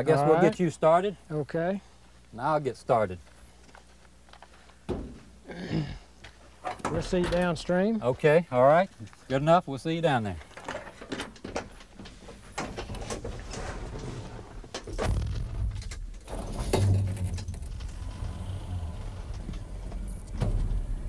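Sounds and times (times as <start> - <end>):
truck engine rumbling: 15.4 - 21.0
car door shutting: 19.1 - 21.0.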